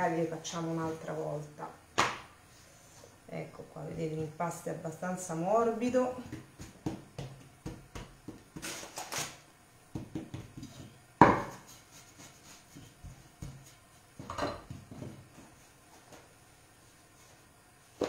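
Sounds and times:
rolling pin knocking on board: 6.2s - 8.7s, 9.9s - 11.6s.

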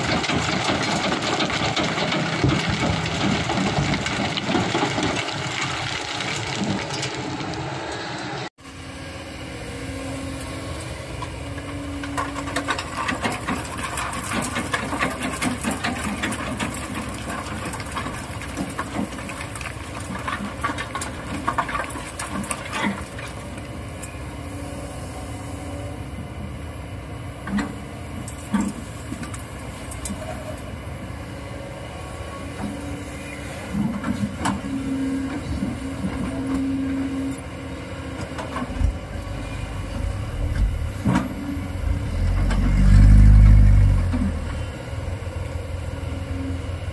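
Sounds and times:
rock and sand clattering: 0.0s - 7.4s, 12.6s - 23.5s
diesel engine running: 0.0s - 46.9s.

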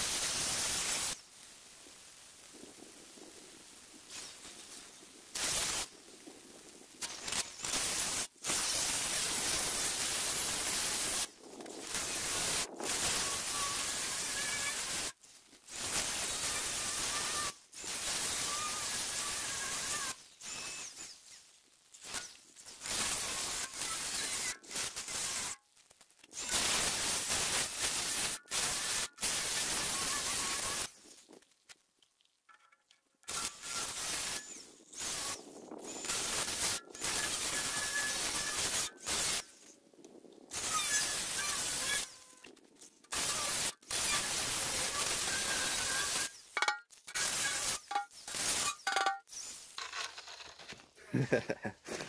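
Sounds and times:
cutter blade cutting steel: 33.3s - 39.4s, 40.5s - 42.4s, 43.1s - 50.5s.

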